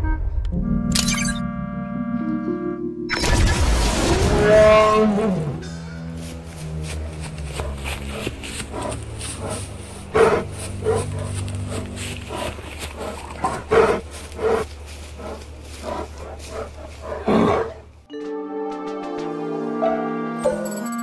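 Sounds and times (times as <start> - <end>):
piano music: 0.0 - 3.2, 18.1 - 21.0
steady low rumble: 5.4 - 18.1
beast growling and barking: 7.5 - 17.9.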